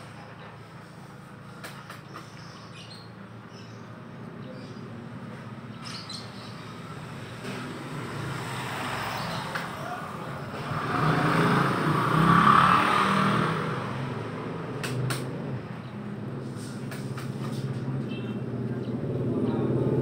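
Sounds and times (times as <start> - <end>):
motor vehicle passing by: 5.2 - 20.0
sharp clicks: 14.8 - 15.3.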